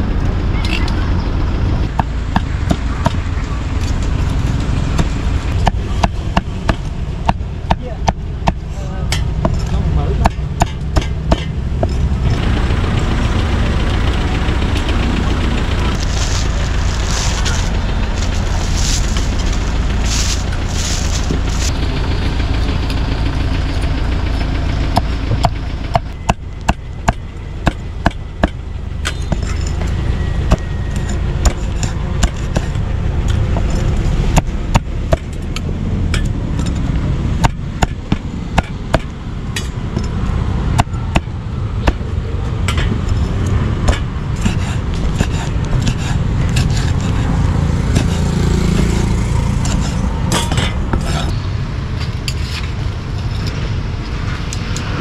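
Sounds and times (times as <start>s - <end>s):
street traffic rumble: 0.0s - 55.0s
cleaver chopping meat: 40.8s - 42.0s, 43.8s - 47.3s, 47.9s - 48.3s.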